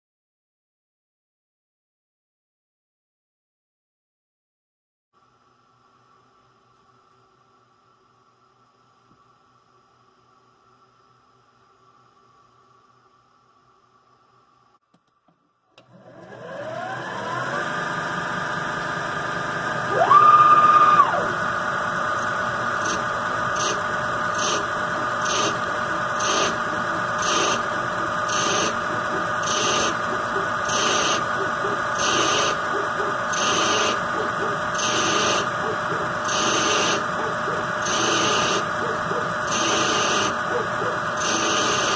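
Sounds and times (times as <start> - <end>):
lathe tool cutting metal: 16.8 - 41.9
high-pitched whine: 19.9 - 41.9.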